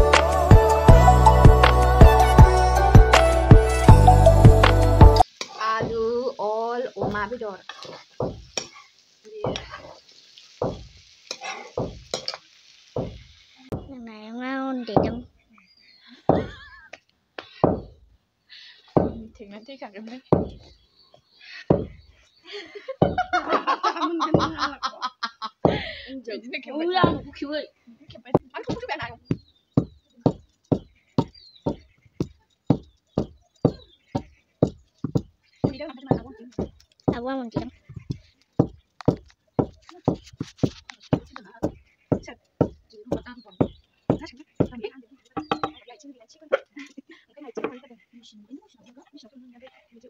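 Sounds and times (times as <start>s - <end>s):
vegetables sizzling in a wok: 5.2s - 15.3s
metal spatula scraping wok: 6.9s - 9.0s, 9.6s - 13.6s
pestle thudding in mortar: 7.0s - 8.7s, 9.4s - 9.8s, 10.6s - 10.9s, 11.8s - 12.3s, 13.0s - 13.9s, 14.9s - 15.3s, 16.3s - 16.6s, 17.6s - 18.0s, 19.0s - 19.4s, 20.3s - 20.8s, 21.7s - 22.0s, 24.3s - 24.7s, 27.0s - 27.4s, 28.4s - 44.8s, 45.4s - 45.8s.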